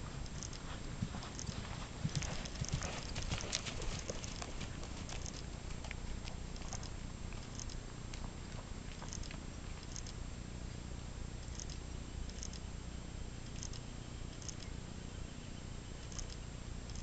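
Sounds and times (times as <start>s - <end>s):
horse hooves on sand and gravel: 0.0s - 7.5s.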